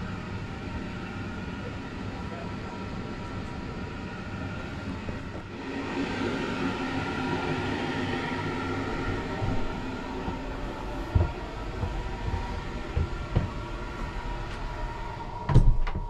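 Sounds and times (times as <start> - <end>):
train carriage hum and rumble: 0.0 - 16.0.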